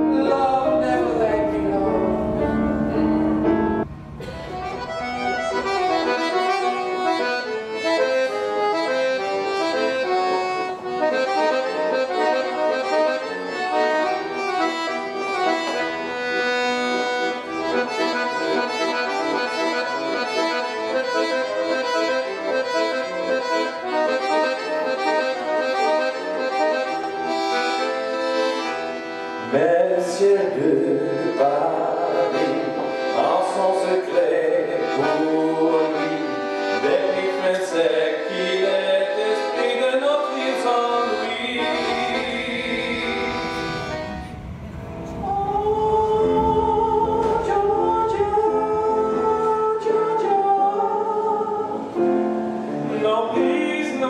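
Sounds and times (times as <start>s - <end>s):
man singing: 0.0s - 3.1s, 29.4s - 44.0s, 45.2s - 51.9s, 52.8s - 54.0s
low rumbling noise: 0.0s - 7.9s, 41.4s - 50.7s
piano accordion melody: 0.0s - 54.0s.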